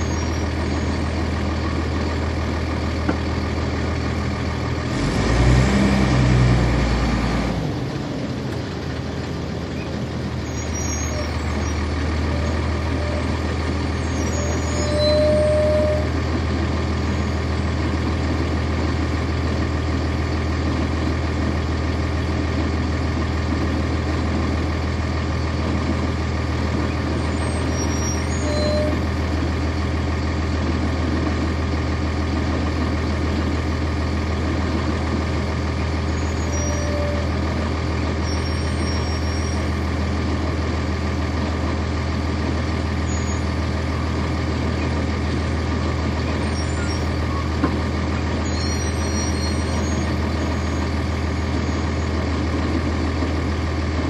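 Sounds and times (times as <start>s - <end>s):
diesel bus engine drone: 0.0s - 54.0s
brief squeaks: 46.4s - 47.6s, 48.5s - 50.8s.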